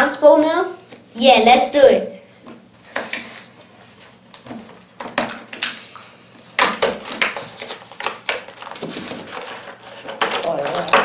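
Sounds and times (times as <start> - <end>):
plastic packaging crinkling: 6.4 - 11.0.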